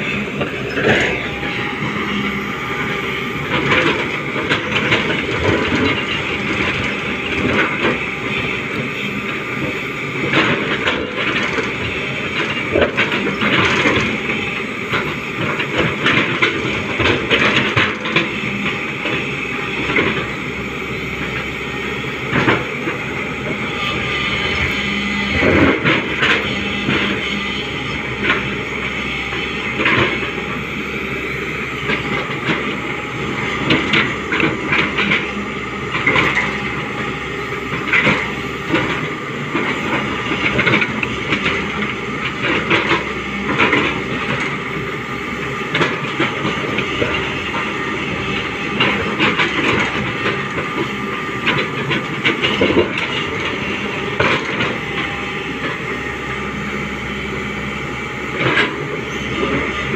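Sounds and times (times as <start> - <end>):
excavator engine and hydraulics: 0.0 - 59.9.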